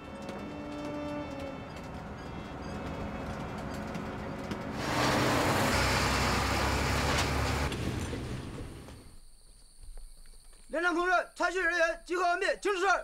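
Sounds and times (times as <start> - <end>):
road noise: 0.0 - 9.2
truck engine rumbling: 0.0 - 9.2.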